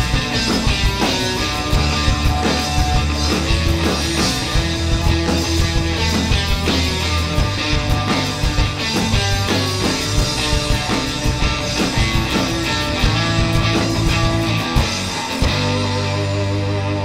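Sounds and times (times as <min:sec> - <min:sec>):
rock band playing live: 0:00.0 - 0:17.0.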